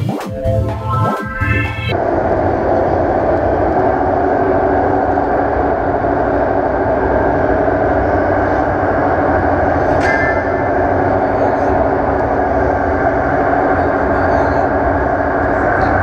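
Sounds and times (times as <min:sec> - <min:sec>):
electronic music: 0:00.0 - 0:16.0.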